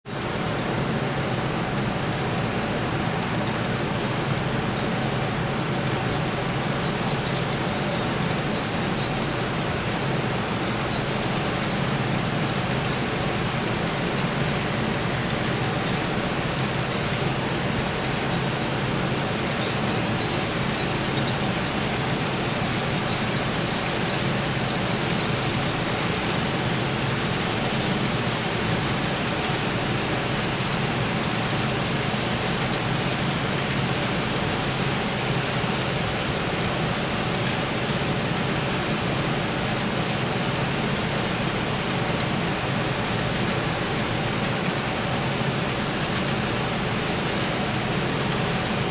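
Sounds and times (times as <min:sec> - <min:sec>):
model train wheels on rails: 0:02.3 - 0:48.9.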